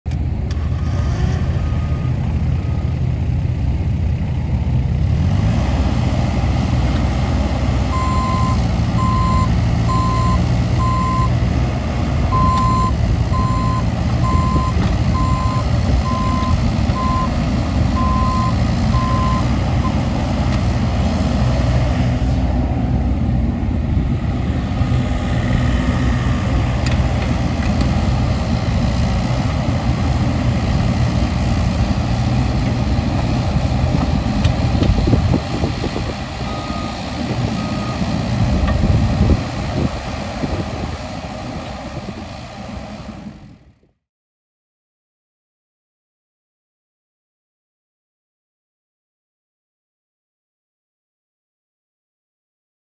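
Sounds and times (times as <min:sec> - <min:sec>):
excavator diesel engine running: 0:00.1 - 0:43.8
warning alarm beeps: 0:07.9 - 0:11.3, 0:12.3 - 0:17.4, 0:18.0 - 0:20.0.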